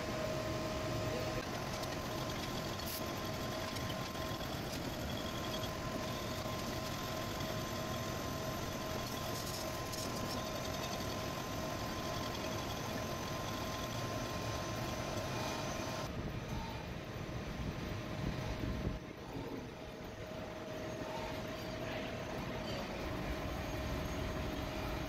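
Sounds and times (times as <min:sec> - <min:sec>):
metal lathe running: 0:01.4 - 0:16.1.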